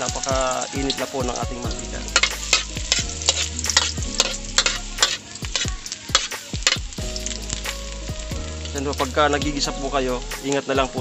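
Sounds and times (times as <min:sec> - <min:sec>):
ginger sizzling in hot oil: 0:00.0 - 0:11.0
metal ladle scraping a wok: 0:01.7 - 0:07.7.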